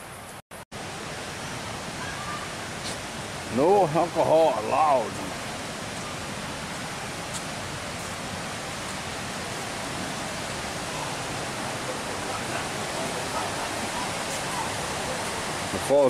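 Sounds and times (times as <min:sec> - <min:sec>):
water rushing over rocks: 0:00.8 - 0:16.0.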